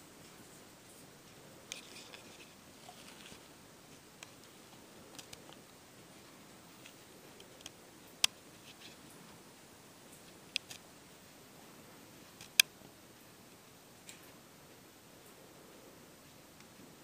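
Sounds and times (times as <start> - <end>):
faint hiss: 0.0 - 17.0
small clicks and ticks: 0.2 - 5.8, 6.8 - 9.3, 10.1 - 10.9, 12.3 - 12.7.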